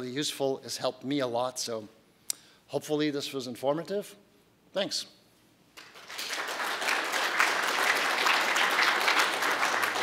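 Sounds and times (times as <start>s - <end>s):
audience applauding: 5.8s - 10.0s.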